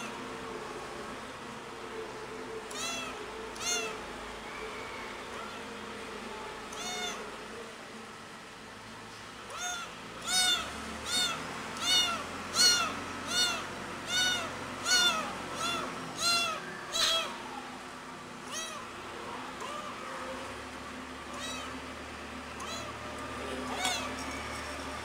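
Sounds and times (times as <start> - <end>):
kitten meowing loudly: 2.7 - 4.0, 6.7 - 7.2, 9.5 - 17.4, 18.4 - 18.9, 21.3 - 21.8, 22.6 - 22.9, 23.7 - 24.2.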